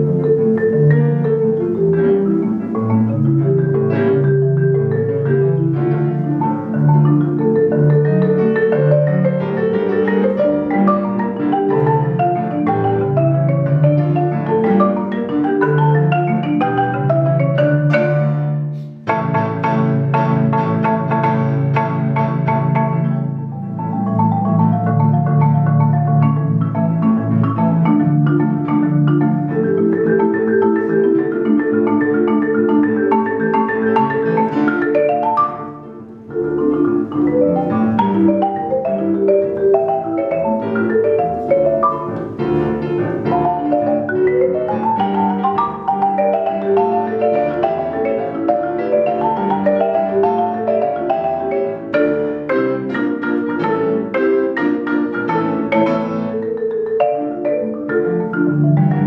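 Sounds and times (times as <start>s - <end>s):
marimba played with mallets: 0.0s - 59.0s.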